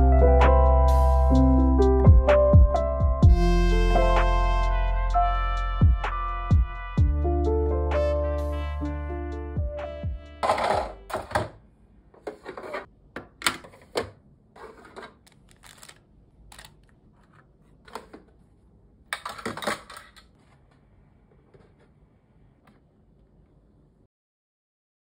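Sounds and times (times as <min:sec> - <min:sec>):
loud plastic clatter: 0:10.4 - 0:11.6, 0:19.1 - 0:20.4.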